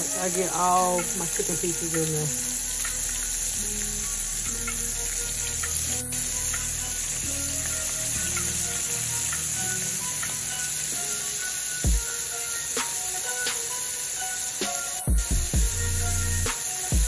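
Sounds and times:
chicken frying in grease: 0:00.0 - 0:17.0.

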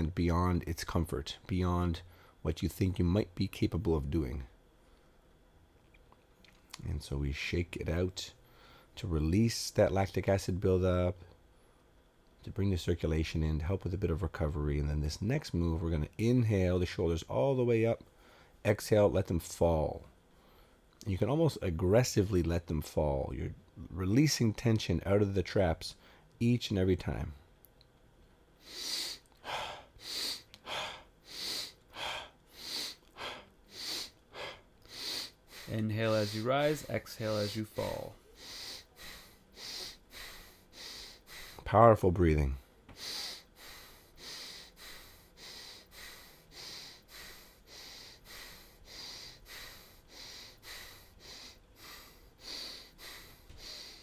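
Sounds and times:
forceful rhythmic breathing: 0:28.6 - 0:54.0.

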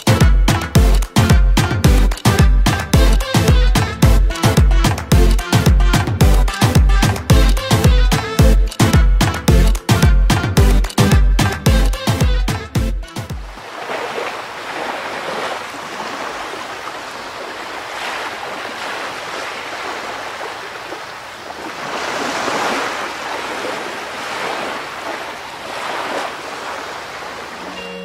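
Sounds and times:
ocean waves washing in: 0:13.4 - 0:28.0.

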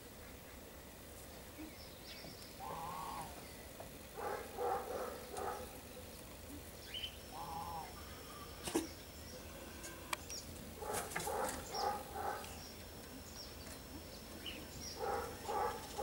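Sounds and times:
animal calls: 0:02.6 - 0:03.4, 0:07.2 - 0:10.1, 0:10.8 - 0:12.6, 0:14.5 - 0:16.0.

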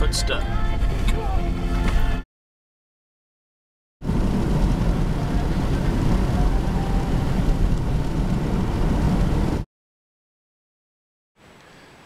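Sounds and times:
road and wind rumble inside van: 0:00.0 - 0:02.2, 0:04.0 - 0:09.7.

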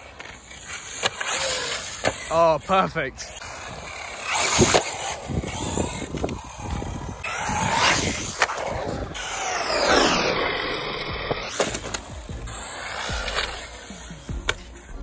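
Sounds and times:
rc car motor whine: 0:00.0 - 0:15.0
tyre noise: 0:00.0 - 0:15.0.

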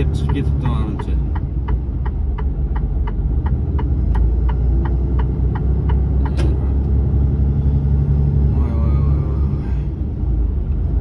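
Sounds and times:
truck engine and road rumble: 0:00.0 - 0:11.0.

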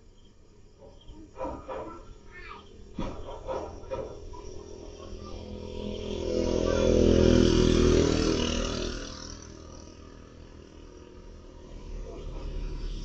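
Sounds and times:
vehicle passing by: 0:03.3 - 0:13.0.

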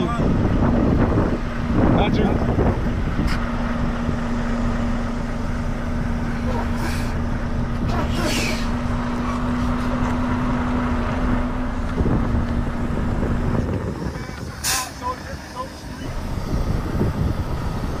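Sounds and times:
diesel truck engine rumble: 0:00.0 - 0:18.0
brief air hisses: 0:08.1 - 0:08.7, 0:14.6 - 0:15.0.

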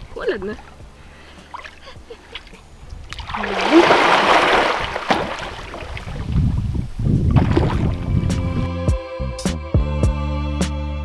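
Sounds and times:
water sloshing from swimming: 0:00.0 - 0:08.1
person splashing into water: 0:01.4 - 0:06.3, 0:07.3 - 0:08.0.

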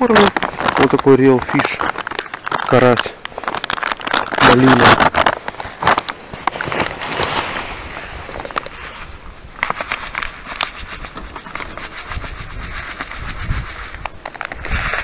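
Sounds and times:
grains pouring onto ice: 0:00.0 - 0:05.3
foil bag crinkling: 0:00.0 - 0:15.0.

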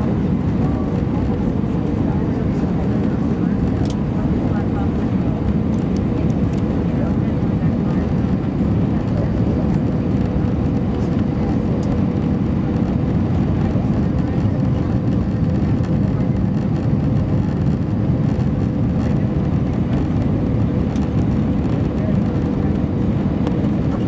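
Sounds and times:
airplane cabin rumble: 0:00.0 - 0:24.0.

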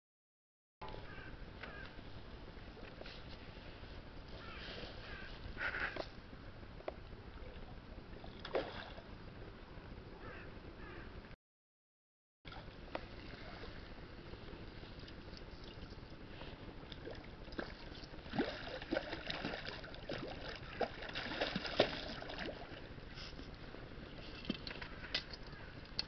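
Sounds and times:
water noise: 0:00.9 - 0:10.7, 0:12.5 - 0:26.0
fish splashing at water surface: 0:17.0 - 0:22.7.

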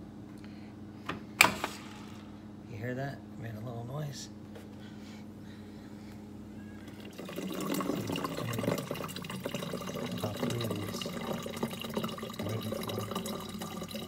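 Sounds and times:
steady low hum: 0:00.0 - 0:14.0
water streaming into plastic bottle: 0:06.9 - 0:14.0.

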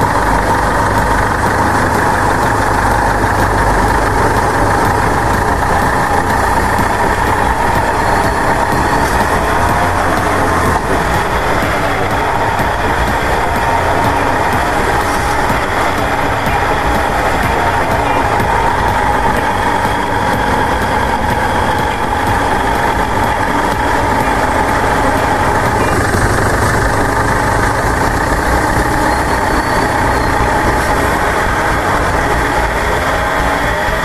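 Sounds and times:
driveshaft growling: 0:00.0 - 0:34.0.

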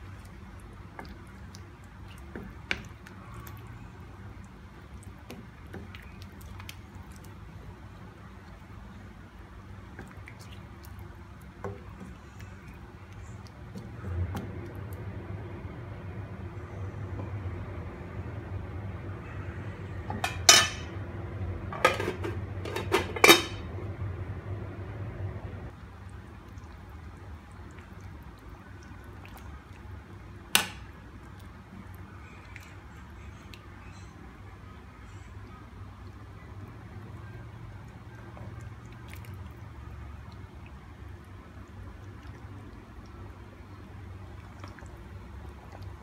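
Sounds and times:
low steady hum: 0:00.0 - 0:46.0
metal pot lid clinking: 0:21.8 - 0:23.6.

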